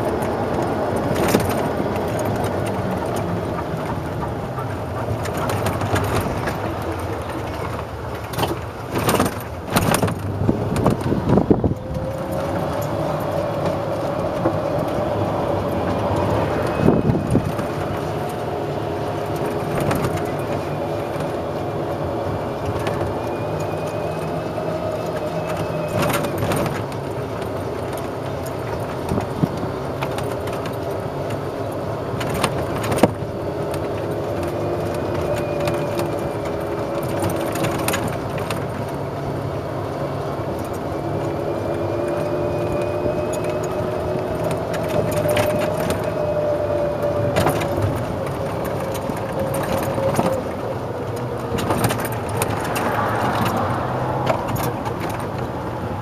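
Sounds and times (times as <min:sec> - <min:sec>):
cart frame rattling and knocking: 0:00.0 - 0:21.6
golf cart running hum: 0:00.0 - 0:56.0.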